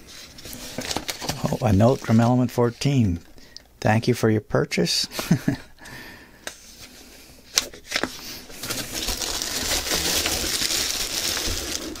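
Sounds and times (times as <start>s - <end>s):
plastic wrapping crinkling: 0.1s - 2.9s, 7.5s - 12.0s.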